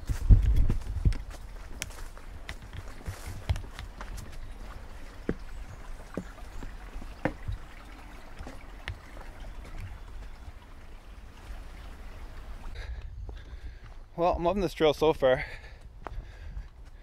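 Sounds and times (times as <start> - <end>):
footsteps on wooden boardwalk: 0.0 - 14.2, 15.5 - 17.0
small stream rushing: 1.3 - 12.8.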